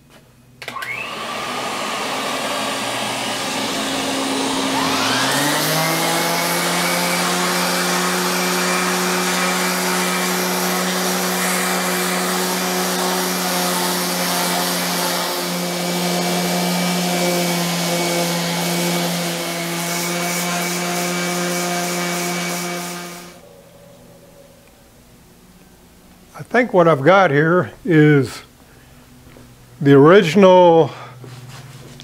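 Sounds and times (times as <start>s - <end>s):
vacuum cleaner running: 0.6s - 24.8s
orbital sander on metal: 1.0s - 23.5s.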